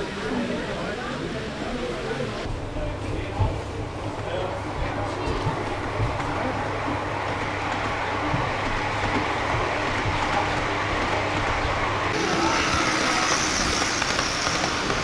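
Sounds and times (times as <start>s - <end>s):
model train rolling rumble: 3.8s - 15.0s.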